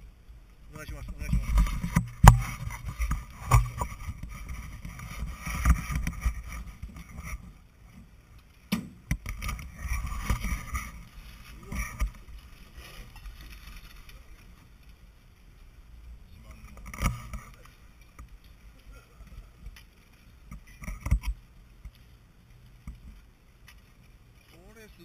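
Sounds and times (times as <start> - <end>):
wind rumbling on microphone: 0.0 - 8.4, 9.0 - 24.4.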